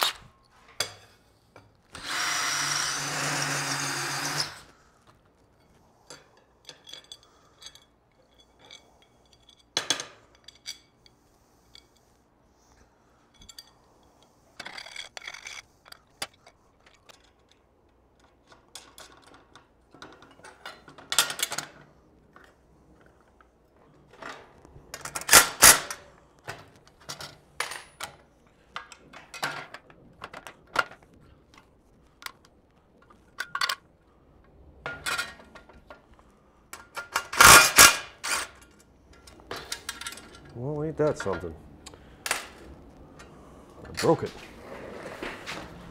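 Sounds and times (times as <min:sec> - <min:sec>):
impact driver bursts: 0:02.0 - 0:04.7
metal parts clinking: 0:14.6 - 0:17.6, 0:33.1 - 0:33.9.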